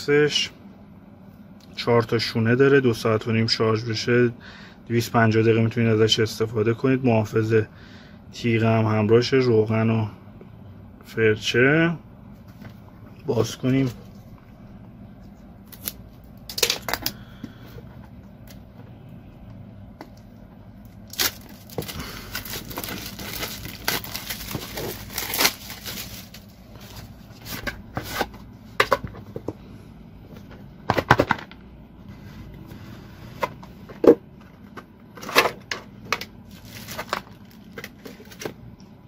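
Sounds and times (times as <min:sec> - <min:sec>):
plastic wrap crinkling: 0:20.9 - 0:27.7, 0:36.4 - 0:38.5
plastic bags rustling: 0:21.0 - 0:28.3, 0:35.2 - 0:38.5.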